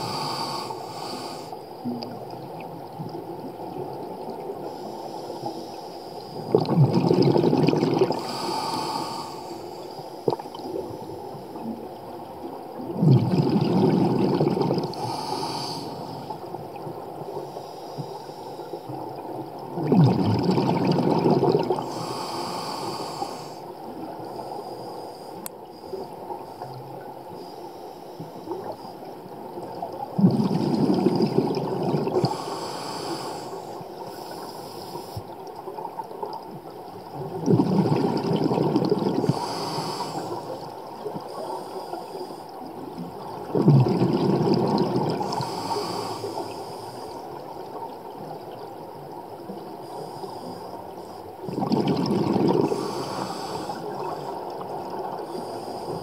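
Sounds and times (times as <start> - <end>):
diver breathing through regulator: 0.0 - 1.6, 8.1 - 10.0, 14.9 - 16.4, 21.8 - 23.7, 32.2 - 35.3, 39.2 - 40.6, 45.2 - 47.3, 52.4 - 54.5, 55.2 - 56.0
exhaled bubbles rumbling: 6.4 - 8.4, 10.3 - 15.3, 18.8 - 21.9, 29.4 - 32.4, 35.7 - 41.3, 42.6 - 45.8, 51.3 - 56.0.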